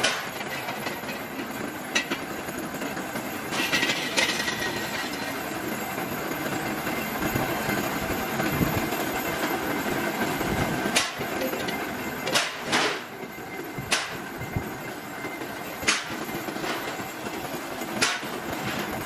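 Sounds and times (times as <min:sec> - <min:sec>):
rim-rolling machine rumbling: 0:00.0 - 0:19.0
metal scraping: 0:03.5 - 0:05.5
sharp metal clank: 0:11.0 - 0:13.1.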